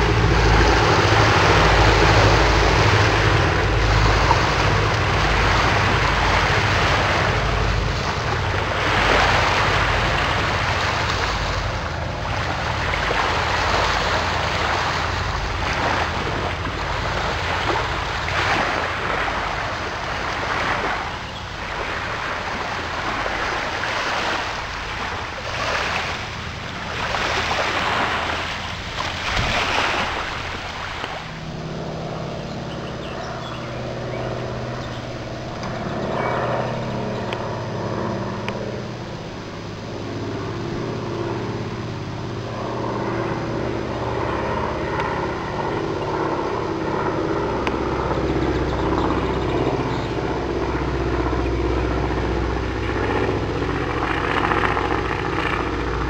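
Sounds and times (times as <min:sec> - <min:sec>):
propeller plane engines droning: 0:00.0 - 0:56.0
wind noise on microphone: 0:00.0 - 0:56.0.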